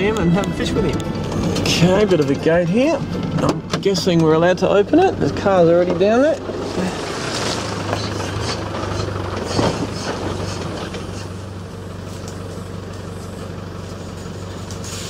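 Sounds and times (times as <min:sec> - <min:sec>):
car engine running at low revs: 0:00.0 - 0:15.0.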